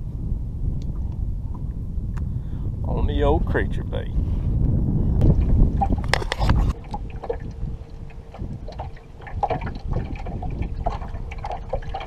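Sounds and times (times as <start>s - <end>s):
wind buffeting microphone: 0.0s - 12.0s
faint steady hum: 3.8s - 12.0s.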